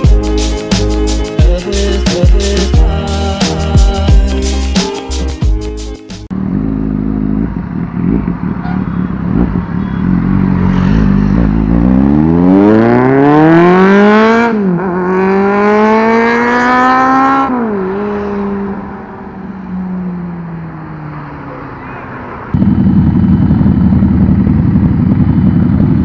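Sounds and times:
motorcycle engine accelerating: 6.3s - 21.3s, 22.4s - 26.0s.

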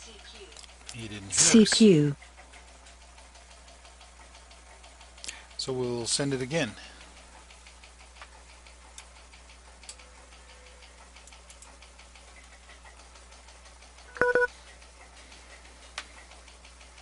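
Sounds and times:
faint irregular clicks: 0.4s - 17.0s
low steady hum: 14.0s - 14.5s.

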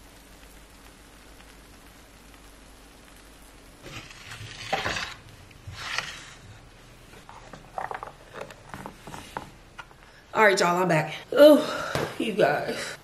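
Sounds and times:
cutting board scraping on stone: 3.8s - 6.4s.

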